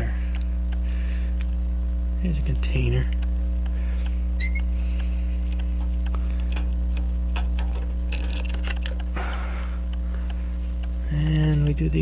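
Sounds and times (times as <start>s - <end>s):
mains hum: 0.0s - 12.0s
small clicks and taps: 9.9s - 11.8s.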